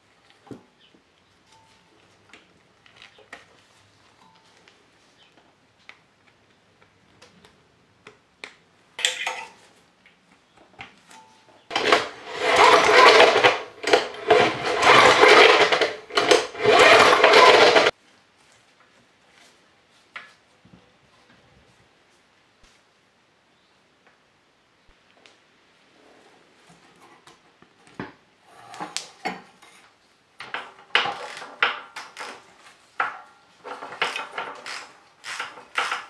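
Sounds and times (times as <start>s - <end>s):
small engine cranking over: 11.7s - 17.9s, 33.6s - 36.0s.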